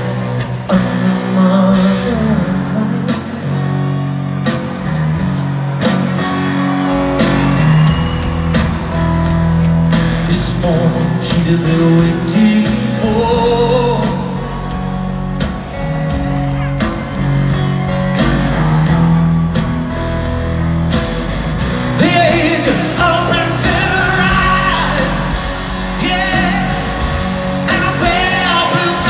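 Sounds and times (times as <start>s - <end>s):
bass guitar: 0.0s - 29.0s
drums: 0.0s - 29.0s
electric guitars: 0.0s - 29.0s
person singing: 0.4s - 4.2s, 10.2s - 15.0s, 22.0s - 29.0s.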